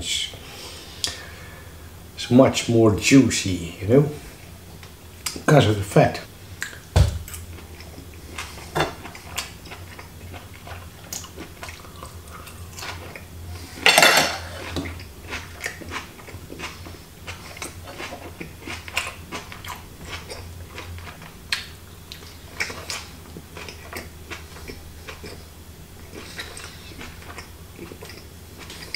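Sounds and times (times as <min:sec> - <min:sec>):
chewing: 0:06.6 - 0:13.3, 0:14.5 - 0:28.9
cutlery scraping on a plate: 0:13.8 - 0:14.9.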